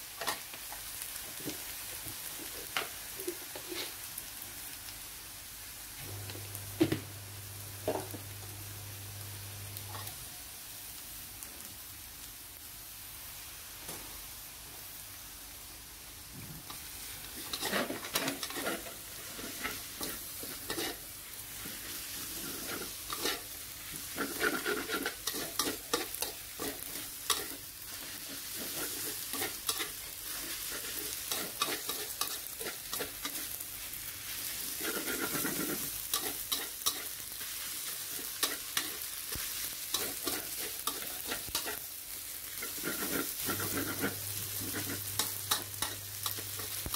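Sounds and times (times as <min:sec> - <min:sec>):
frying sizzle: 0:00.0 - 0:46.9
metal spatula scraping wok: 0:16.7 - 0:21.0, 0:21.6 - 0:33.6, 0:34.2 - 0:46.9.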